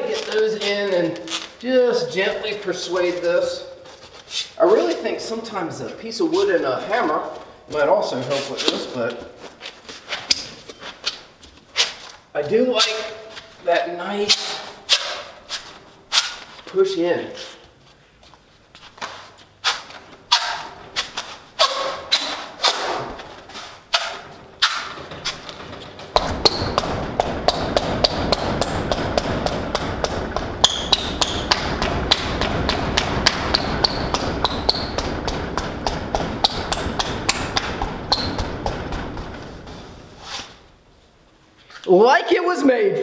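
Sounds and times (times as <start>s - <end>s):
hand thumping foam board: 26.1s - 40.2s
rushing noise with rapid clicks: 26.1s - 40.3s.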